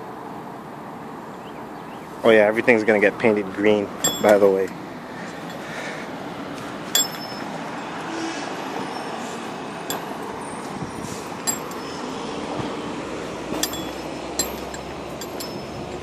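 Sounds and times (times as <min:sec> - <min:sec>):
distant traffic: 0:00.0 - 0:16.0
short sharp clinks: 0:04.0 - 0:04.7, 0:06.9 - 0:07.8, 0:09.8 - 0:10.8, 0:11.4 - 0:12.1, 0:13.5 - 0:16.0.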